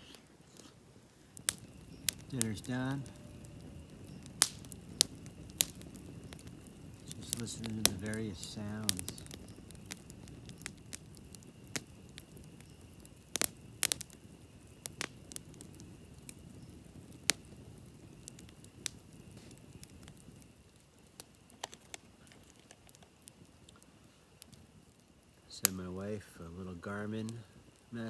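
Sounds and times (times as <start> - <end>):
campfire crackling: 0.0 - 28.0
low rustle of flame: 0.0 - 28.0
sharp pops from burning sticks: 0.1 - 28.0.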